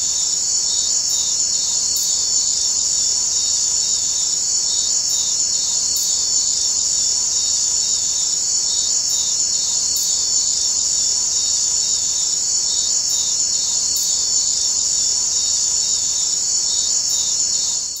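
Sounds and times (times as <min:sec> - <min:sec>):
insect chorus chirring: 0:00.0 - 0:18.0.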